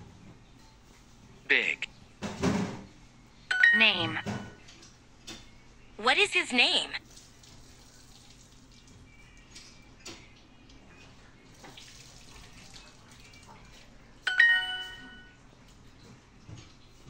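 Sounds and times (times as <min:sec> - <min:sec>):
bright ringing chime: 0:03.5 - 0:04.6, 0:14.3 - 0:15.4.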